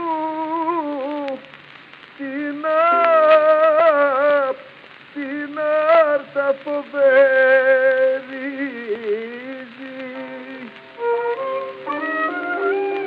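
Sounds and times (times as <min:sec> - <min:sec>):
record surface crackle: 0:00.0 - 0:13.0
old instrumental music: 0:02.2 - 0:04.6, 0:05.2 - 0:13.0.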